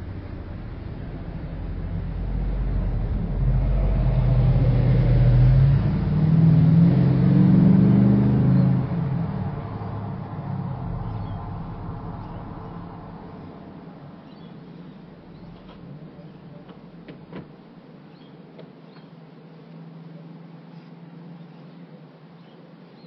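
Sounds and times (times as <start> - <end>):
vehicle engine passing: 0.0 - 17.3.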